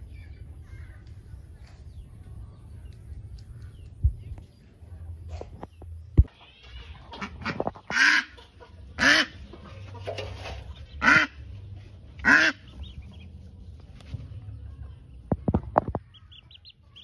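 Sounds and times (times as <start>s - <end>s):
ducklings peeping: 5.6s - 17.0s
duck quacking: 7.1s - 9.5s, 10.9s - 11.5s, 12.2s - 13.0s, 16.1s - 17.0s.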